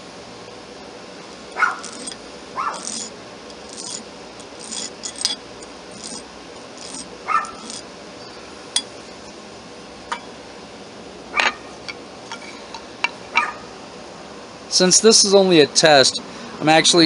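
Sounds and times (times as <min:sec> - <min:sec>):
rasping strokes abrading metal: 0:01.4 - 0:08.4.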